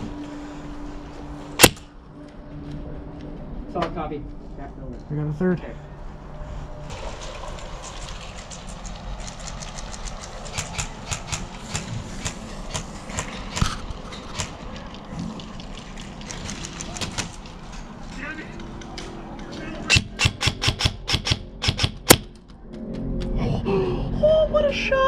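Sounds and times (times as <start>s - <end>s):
airsoft gunfire cracks: 1.6s - 1.9s
low rumble: 22.2s - 25.0s.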